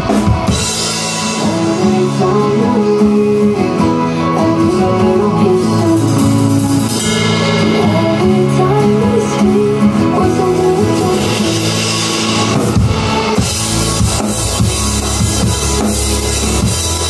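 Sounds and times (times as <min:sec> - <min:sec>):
drum kit and cymbals: 0:00.0 - 0:17.0
electric guitar: 0:00.0 - 0:17.0
rock song: 0:00.0 - 0:17.0
person singing: 0:01.1 - 0:12.7.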